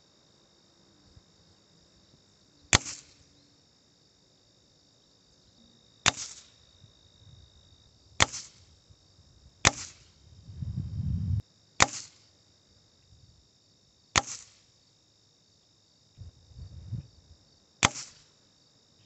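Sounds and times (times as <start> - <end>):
air rifle shots: 2.7 - 3.2, 6.1 - 6.5, 8.2 - 8.7, 9.6 - 10.2, 11.8 - 12.2, 14.2 - 14.6, 17.8 - 18.3
pellets striking cardboard: 8.2 - 8.5, 9.7 - 10.0, 11.8 - 12.1, 14.2 - 14.6, 17.8 - 18.2
low rumble: 10.3 - 11.4.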